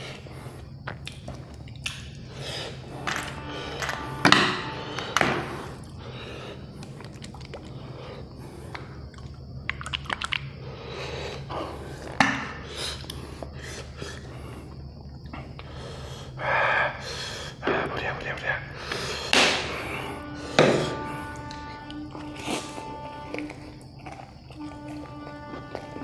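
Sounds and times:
chewing and biting fried chicken: 0:00.8 - 0:02.0, 0:06.7 - 0:07.8, 0:23.2 - 0:25.1.

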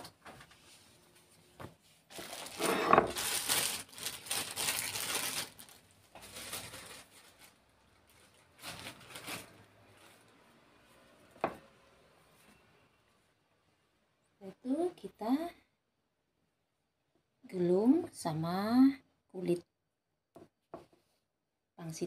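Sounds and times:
plastic bag crinkling: 0:02.1 - 0:10.8.

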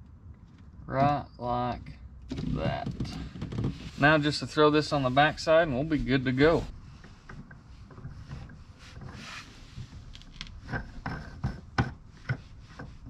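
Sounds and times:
plastic fitting rubbing and scraping: 0:02.3 - 0:13.0
light clicks and knocks: 0:06.2 - 0:13.0.

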